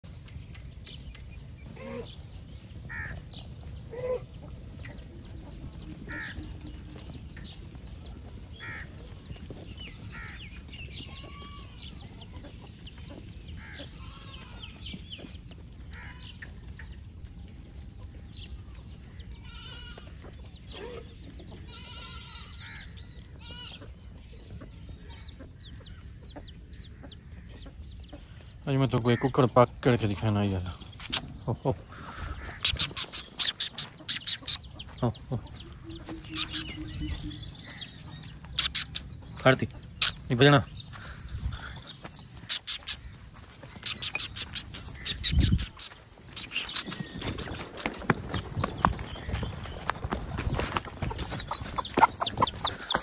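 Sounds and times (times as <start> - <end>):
chickens clucking: 0.1 - 53.0
goats bleating: 11.0 - 12.1, 13.6 - 14.8, 19.4 - 20.2, 21.6 - 22.6.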